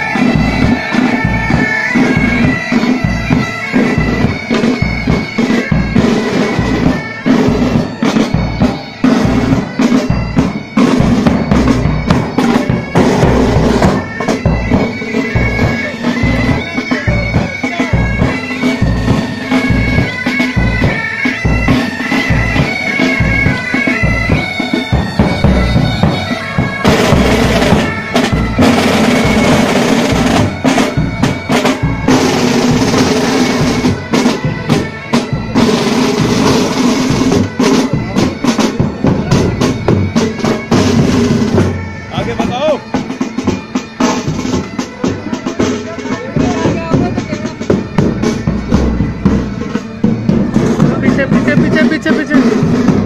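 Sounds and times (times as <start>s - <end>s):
bagpipes playing a march: 0.0s - 53.0s
snare drums rattling: 0.0s - 53.0s
bass drum beat: 46.4s - 53.0s.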